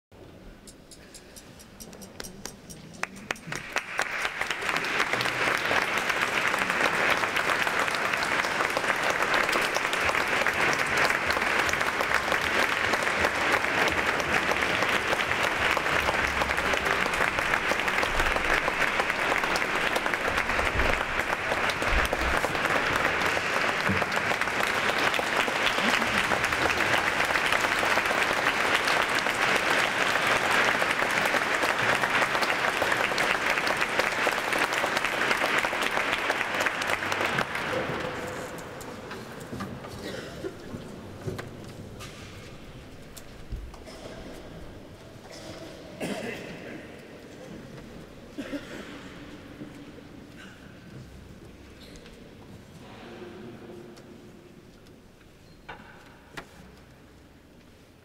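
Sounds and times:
audience applauding: 0:02.4 - 0:39.1.

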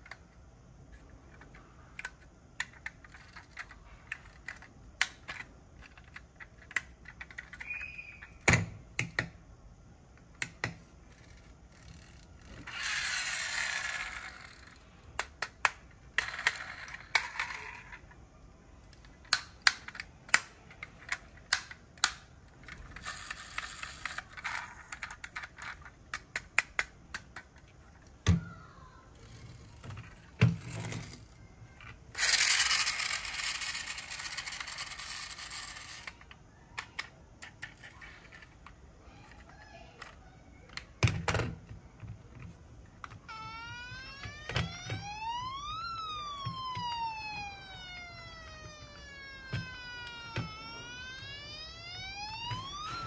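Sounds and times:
toy car wheels whirring: 0:00.9 - 0:08.4, 0:11.0 - 0:18.2, 0:19.3 - 0:27.6, 0:28.4 - 0:40.9, 0:43.0 - 0:53.0
toy car parts clicking: 0:00.9 - 0:09.4, 0:10.2 - 0:18.2, 0:18.8 - 0:41.4
toy siren wailing: 0:12.7 - 0:14.7, 0:43.3 - 0:53.0.

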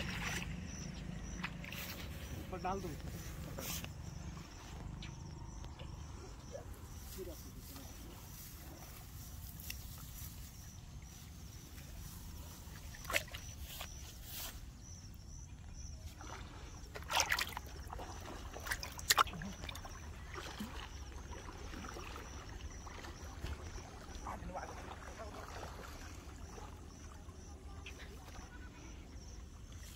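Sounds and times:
fish splashing in bucket: 0:00.0 - 0:02.4, 0:16.2 - 0:27.0
faint insect chirp: 0:00.0 - 0:29.9.

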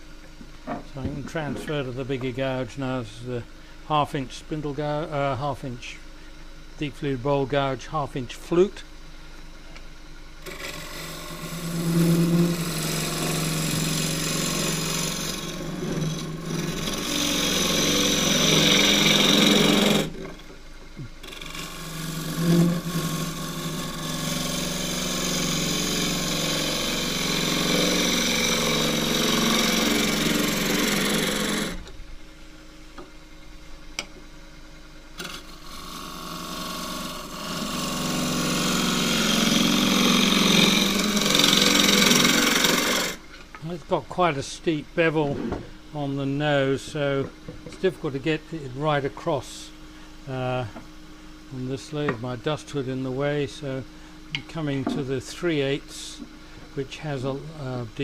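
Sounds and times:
lathe gouge cutting wet wood: 0:10.4 - 0:20.4, 0:21.2 - 0:31.8, 0:35.2 - 0:43.2.

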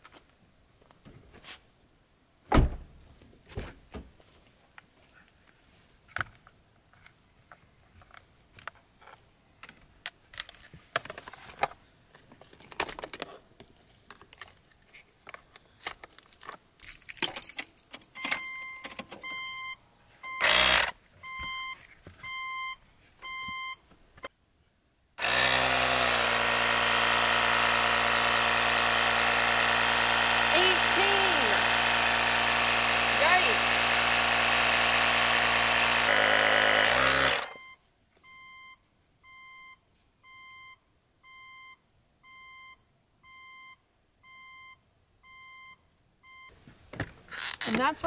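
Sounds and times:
rustling and clicks: 0:03.7 - 0:19.5
short electronic beeps: 0:18.2 - 0:20.6, 0:21.2 - 0:23.8, 0:37.6 - 0:46.5
tire inflator compressor running: 0:20.4 - 0:21.0, 0:25.2 - 0:37.6.

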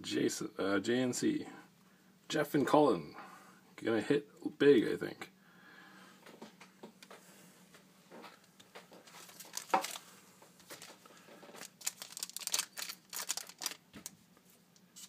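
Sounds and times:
foil wrappers crinkling: 0:09.0 - 0:14.2.

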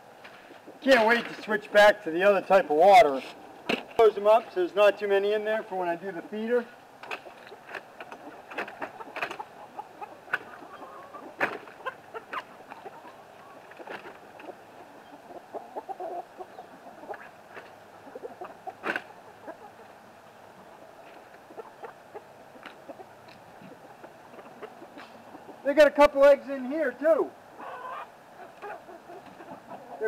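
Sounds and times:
chickens clucking: 0:00.0 - 0:30.0.

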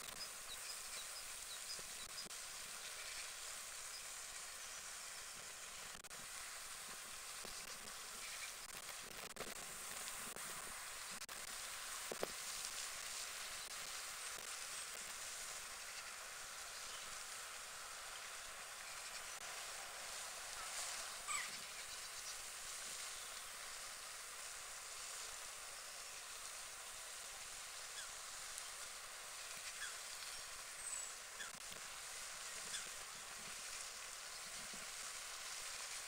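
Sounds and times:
outdoor background hiss: 0:00.0 - 0:36.0
faint bird calls: 0:20.5 - 0:22.4, 0:27.8 - 0:28.9, 0:29.6 - 0:31.6, 0:32.4 - 0:33.2.

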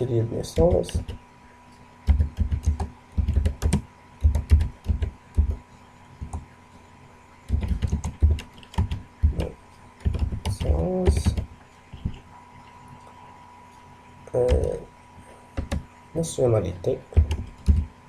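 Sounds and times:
computer keyboard typing: 0:00.6 - 0:01.2, 0:02.1 - 0:05.6, 0:06.2 - 0:06.4, 0:07.5 - 0:12.2, 0:15.6 - 0:15.9, 0:17.2 - 0:17.9.

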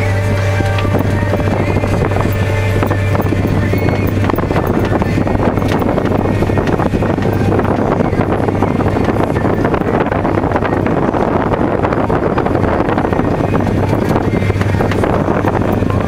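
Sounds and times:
diesel engine running steadily: 0:00.0 - 0:16.0.

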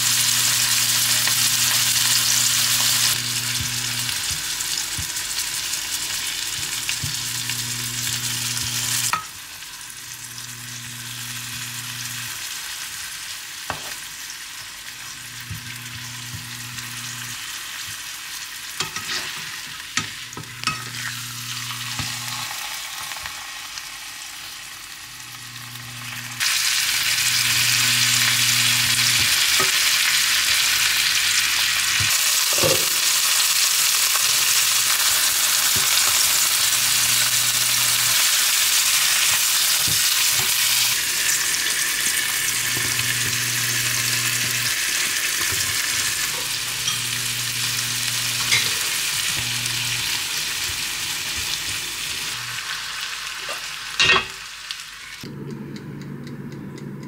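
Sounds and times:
chicken sizzling in a pan: 0:00.0 - 0:55.2
low hum: 0:55.2 - 0:57.0.

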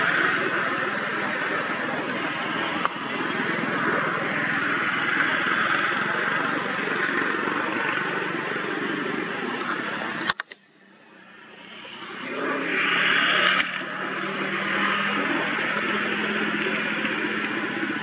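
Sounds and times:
click: 0:09.6 - 0:10.7.

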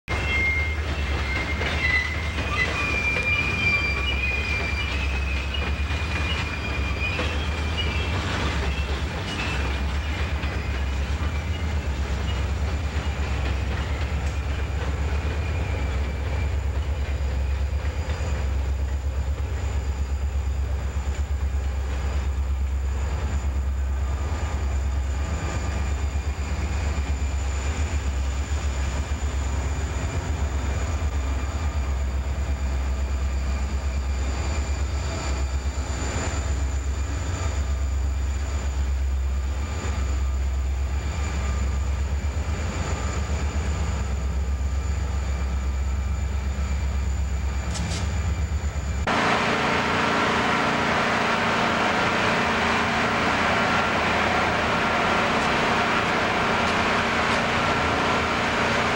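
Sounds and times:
freight train rolling past: 0:00.1 - 0:58.9
train wheel squeal: 0:00.1 - 0:58.9.

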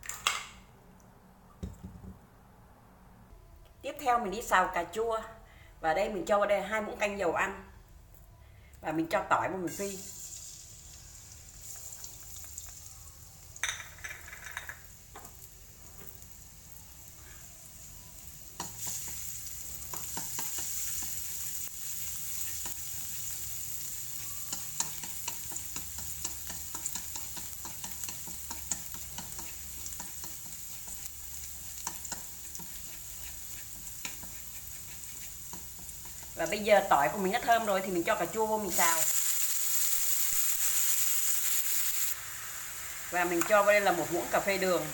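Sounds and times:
garlic sizzling in oil: 0:09.5 - 0:44.9
chopsticks ticking against pan: 0:24.2 - 0:36.6.

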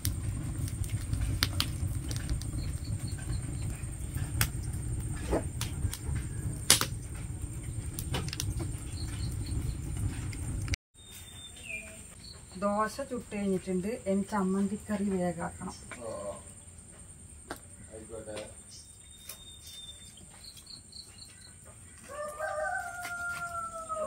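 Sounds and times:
low rumble of flames: 0:00.0 - 0:10.8, 0:11.9 - 0:18.6
burning wood crackles: 0:00.0 - 0:24.0.

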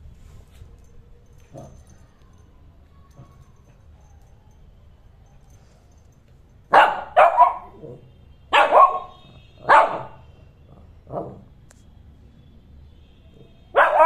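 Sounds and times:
puppy barking: 0:06.7 - 0:10.2, 0:13.7 - 0:14.0.

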